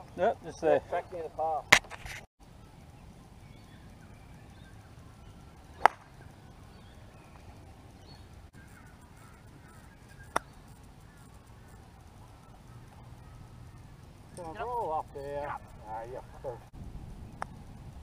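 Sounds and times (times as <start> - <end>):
faint bird calls: 2.6 - 16.7
golf club striking ball: 5.8 - 6.9.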